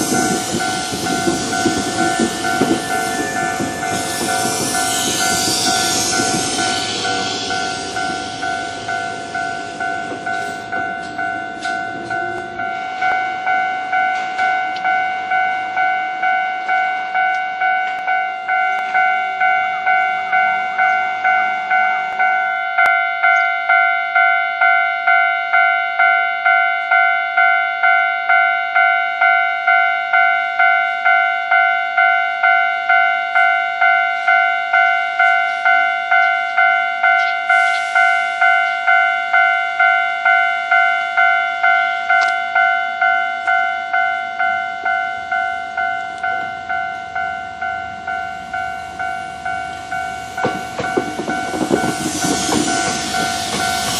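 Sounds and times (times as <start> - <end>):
electric train rumbling past: 0.0 - 53.9
level crossing warning bell: 0.0 - 53.9.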